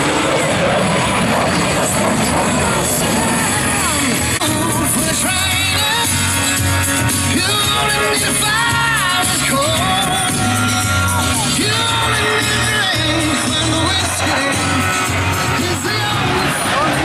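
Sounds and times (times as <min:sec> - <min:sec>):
rock song over loudspeaker: 0:00.0 - 0:17.0.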